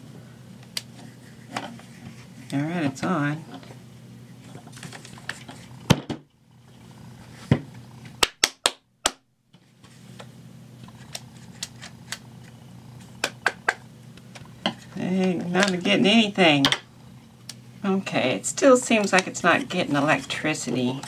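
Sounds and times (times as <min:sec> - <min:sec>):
room hum: 0:00.0 - 0:21.0.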